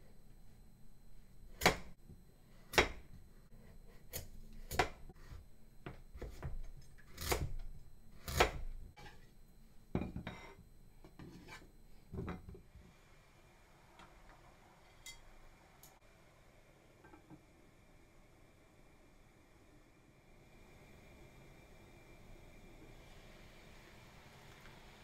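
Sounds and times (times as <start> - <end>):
knife scraping: 8.2 - 9.3, 11.2 - 11.7.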